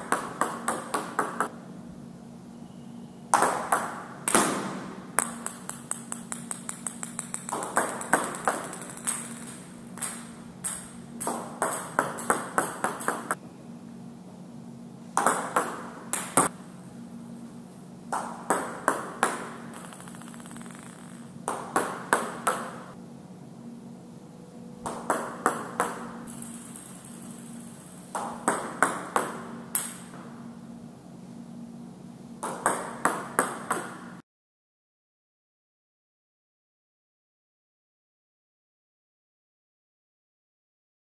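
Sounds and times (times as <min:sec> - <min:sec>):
table tennis ball bouncing: 0:00.0 - 0:01.5, 0:03.4 - 0:13.4, 0:15.2 - 0:16.5, 0:18.2 - 0:23.0, 0:24.8 - 0:30.2, 0:32.4 - 0:34.2
steady low hum: 0:00.0 - 0:34.2.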